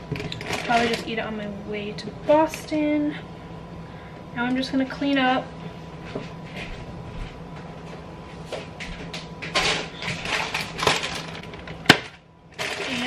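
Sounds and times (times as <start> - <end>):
rustling and clatter of items: 0.0 - 1.1, 6.1 - 13.0.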